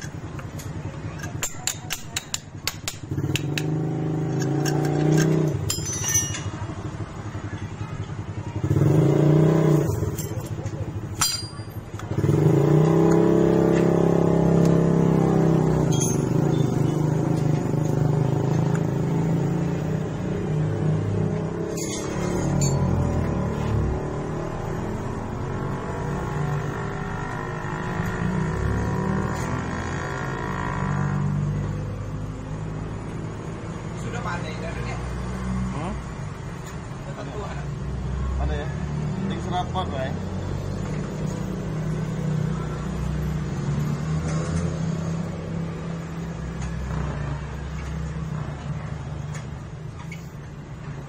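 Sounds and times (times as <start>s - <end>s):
vehicle engine humming: 0.0s - 37.6s.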